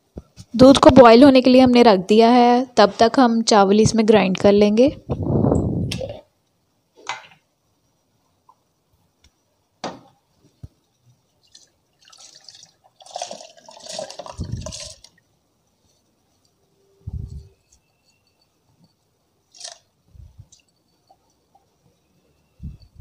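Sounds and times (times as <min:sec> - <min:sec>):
water and rice pouring splash: 0:11.4 - 0:15.1.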